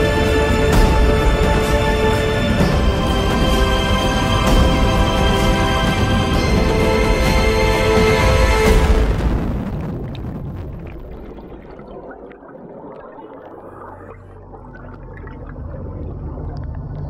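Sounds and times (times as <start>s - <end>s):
low steady drone: 0.0s - 9.9s
underwater air bubbles rushing: 8.7s - 17.0s.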